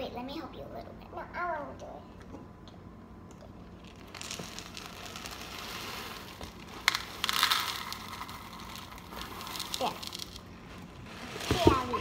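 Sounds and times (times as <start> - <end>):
cereal clattering: 3.7 - 12.0
cereal pouring into plastic bowl: 3.8 - 10.4, 11.0 - 12.0.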